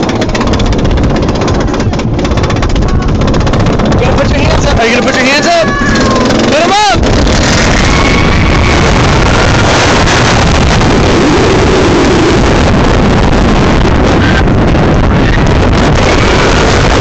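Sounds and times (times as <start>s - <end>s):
roller coaster train rumble: 0.0s - 17.0s
wind blasting microphone: 0.0s - 17.0s
faint screams of riders: 5.2s - 6.9s.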